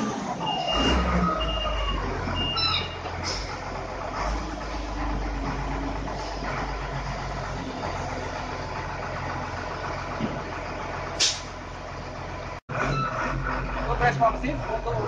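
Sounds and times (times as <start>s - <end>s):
diesel engine running: 0.0s - 15.0s
brief hiss: 11.2s - 11.5s.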